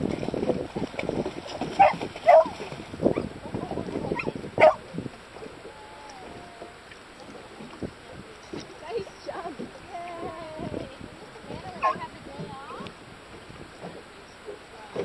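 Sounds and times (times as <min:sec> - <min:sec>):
dog yipping barks: 0:01.8 - 0:02.5, 0:04.6 - 0:04.8.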